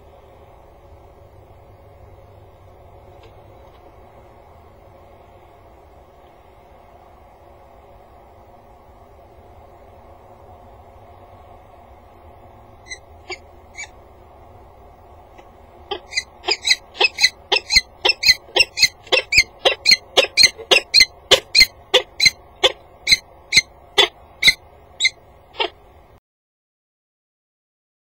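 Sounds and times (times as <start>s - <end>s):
falcon calling sharply: 15.9s - 25.8s.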